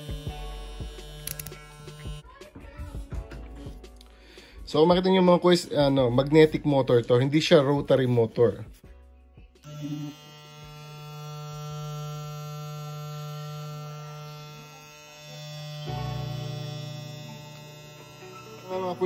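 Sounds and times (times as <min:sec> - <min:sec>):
hair clipper buzzing: 0:00.0 - 0:02.2, 0:09.6 - 0:19.0.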